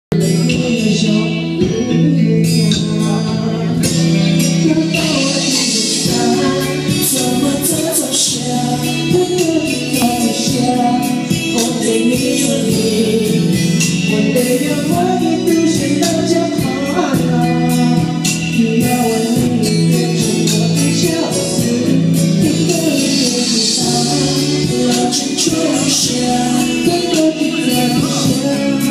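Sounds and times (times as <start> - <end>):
amplified backing music: 0.1 - 28.9
man singing into microphone: 0.1 - 28.9.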